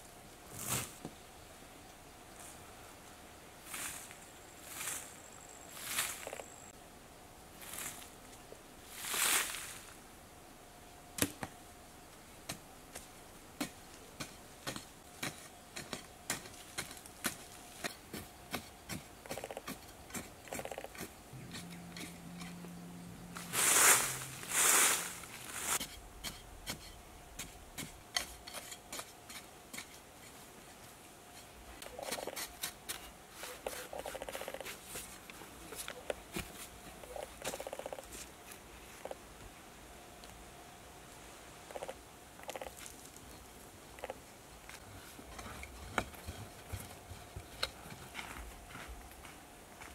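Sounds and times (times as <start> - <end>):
digging stick striking hard earth: 12.4 - 22.6, 23.3 - 30.0.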